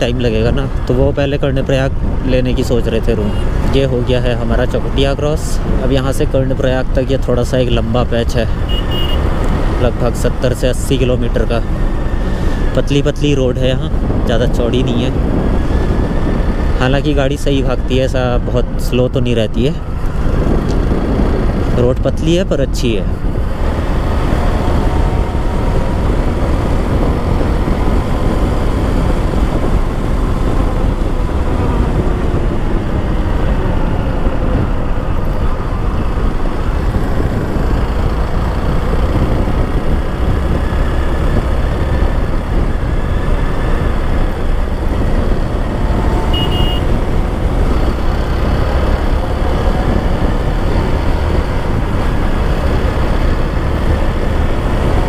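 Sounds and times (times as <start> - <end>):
wind rush on microphone: 0.0 - 55.0
motorcycle engine running: 23.1 - 55.0.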